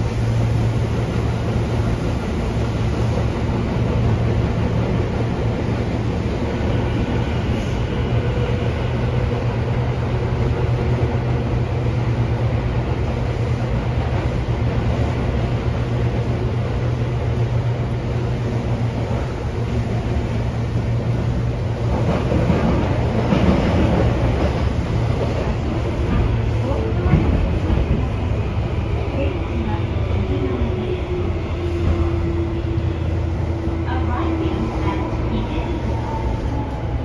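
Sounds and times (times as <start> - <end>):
electric train low hum: 0.0 - 37.0
wheels rumbling on rail: 0.0 - 37.0.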